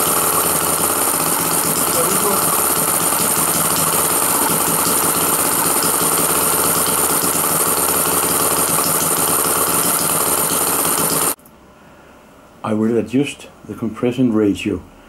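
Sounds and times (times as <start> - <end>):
model petrol engine running: 0.0 - 11.4.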